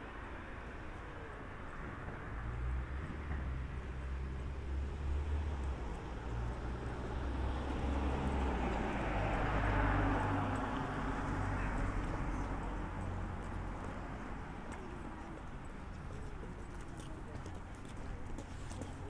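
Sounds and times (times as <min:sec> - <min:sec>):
passing traffic: 0:00.0 - 0:19.0
footsteps on frosty pavement: 0:05.9 - 0:19.0.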